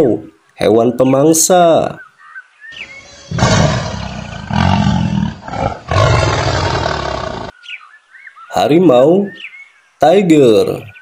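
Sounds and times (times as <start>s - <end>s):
faint bird chirps: 0.2s - 4.6s, 7.3s - 11.0s
tiger roaring: 2.8s - 7.5s.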